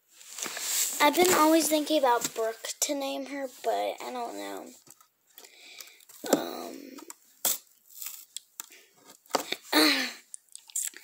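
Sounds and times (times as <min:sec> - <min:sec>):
fabric and cardboard rustling: 0:00.0 - 0:04.8.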